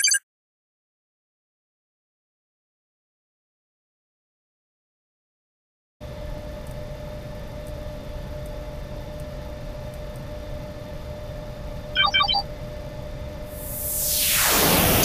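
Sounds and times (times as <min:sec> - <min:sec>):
short electronic beeps: 0:00.0 - 0:00.2, 0:12.0 - 0:12.4
low electronic hum: 0:06.1 - 0:15.0
whooshing sweep: 0:13.6 - 0:15.0.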